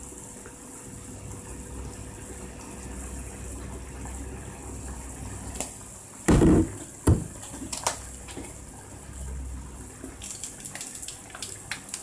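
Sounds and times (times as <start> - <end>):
broth simmering in a frying pan: 0.0 - 12.0
loud short thump: 6.3 - 7.3.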